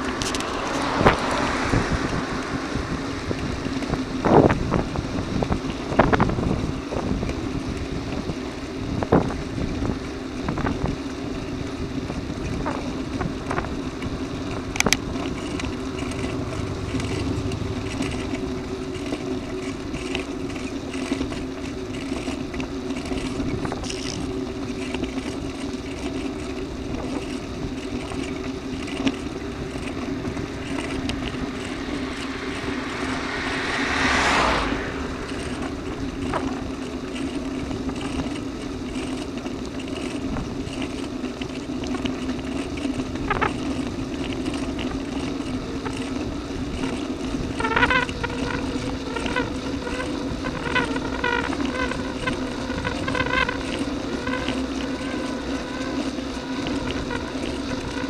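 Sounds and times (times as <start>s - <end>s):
car passing: 0.0s - 6.9s, 13.0s - 22.4s, 27.7s - 39.2s
bicycle ride wind and tyre noise: 0.0s - 58.0s.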